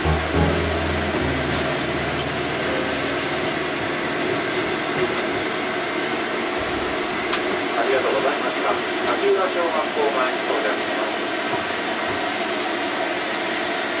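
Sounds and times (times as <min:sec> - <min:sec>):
tram wheels rumbling on rails: 0:00.0 - 0:09.7.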